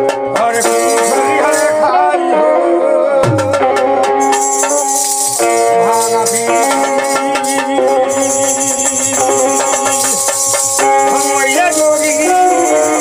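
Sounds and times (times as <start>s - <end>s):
harmonium chords: 0.0s - 13.0s
wooden clappers jingling and clacking: 0.4s - 1.9s, 4.2s - 13.0s
dholak drum beat: 3.2s - 13.0s.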